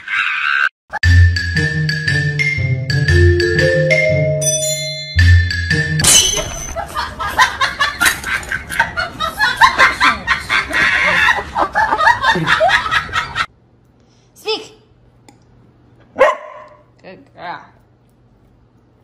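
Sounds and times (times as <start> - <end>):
marimba music: 1.0 - 6.0.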